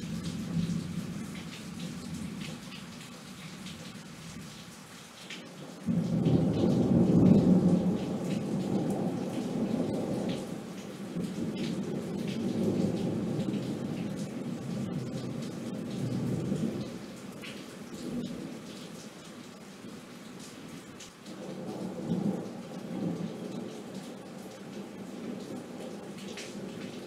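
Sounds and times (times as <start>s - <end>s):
steady rain: 0.0s - 27.0s
rolling thunder rumble: 5.9s - 17.0s.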